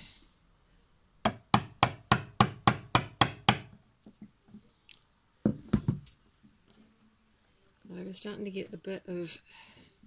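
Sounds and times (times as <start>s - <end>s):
hammer striking steel rod: 1.3s - 3.8s.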